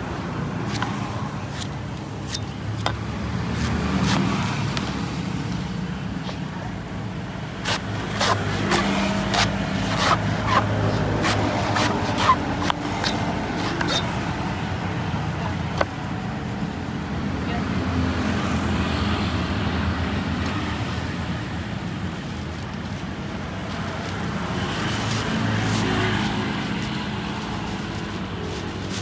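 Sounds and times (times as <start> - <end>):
traffic hum: 0.0 - 29.0
knife chopping coconut husk: 0.6 - 4.8, 7.6 - 14.1.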